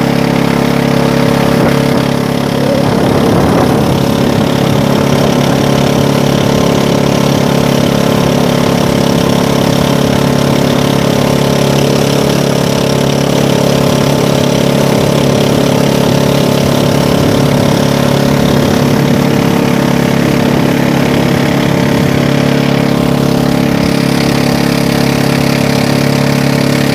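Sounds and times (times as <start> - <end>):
boat engine running: 0.0 - 26.9.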